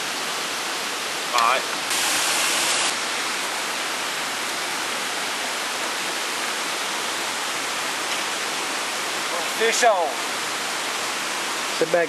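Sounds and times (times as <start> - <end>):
flowing water rushing: 0.0 - 12.0.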